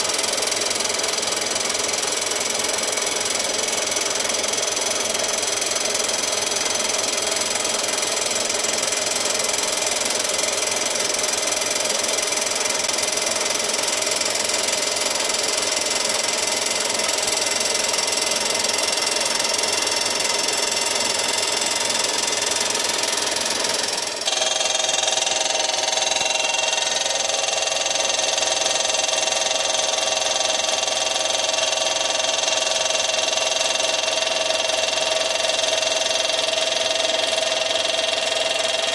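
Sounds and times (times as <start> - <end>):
milling machine whine: 10.7 - 38.9.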